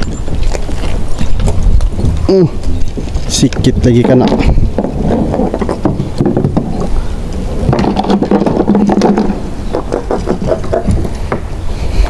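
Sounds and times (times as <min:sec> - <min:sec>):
knocks and scrapes on plastic hull: 0:04.0 - 0:07.0, 0:07.7 - 0:11.5.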